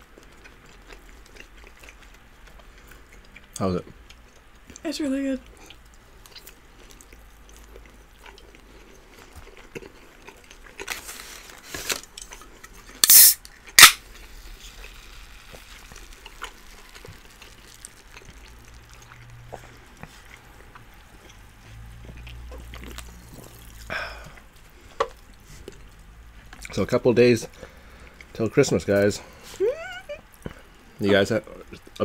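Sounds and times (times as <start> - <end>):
cutlery clicks: 13.0 - 14.0
short loud hiss: 13.0 - 14.0.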